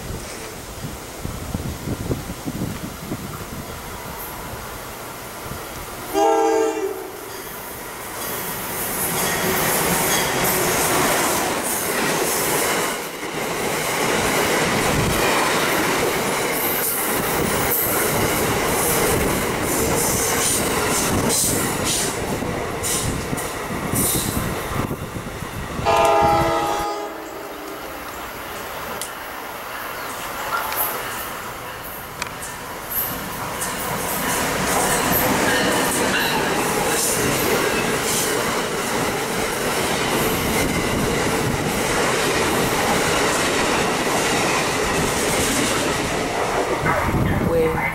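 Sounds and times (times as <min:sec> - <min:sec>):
train wheels rushing on rails: 0:00.0 - 0:47.9
train horn blast: 0:06.1 - 0:07.3, 0:25.8 - 0:27.8.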